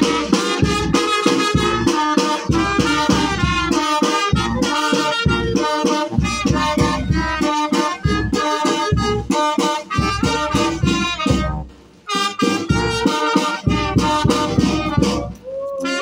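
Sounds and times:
bass drum beat: 0:00.0 - 0:11.7, 0:12.6 - 0:15.5
trumpets playing melody: 0:00.0 - 0:16.0
sousaphone bass line: 0:04.3 - 0:09.4.

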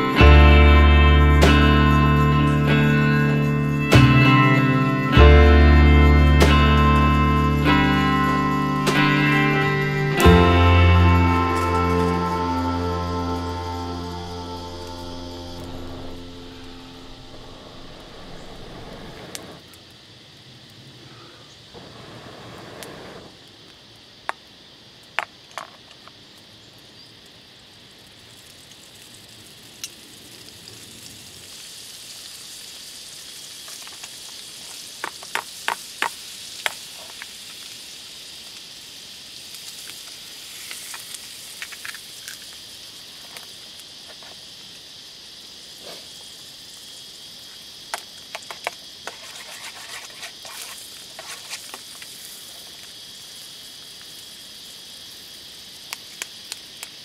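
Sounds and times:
onion and egg sizzling in a pan: 0:00.0 - 0:20.7, 0:26.1 - 0:57.0
utensil clicking in a pan: 0:55.9 - 0:57.0.

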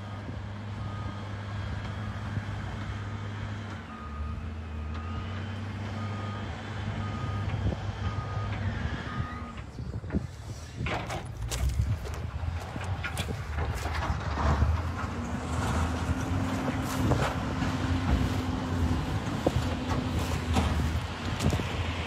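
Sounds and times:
diesel engine running: 0:00.0 - 0:22.0
reversing alarm beeping: 0:03.8 - 0:09.6.

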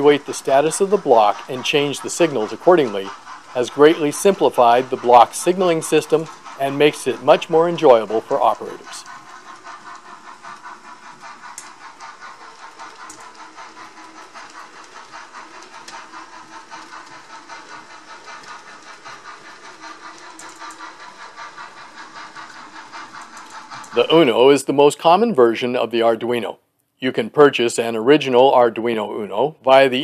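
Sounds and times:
model train running on track: 0:00.0 - 0:30.0.

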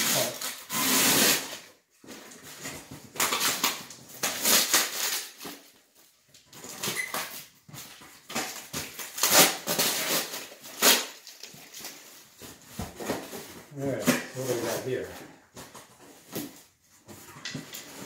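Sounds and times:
cardboard boxes rustling: 0:10.4 - 0:18.0.

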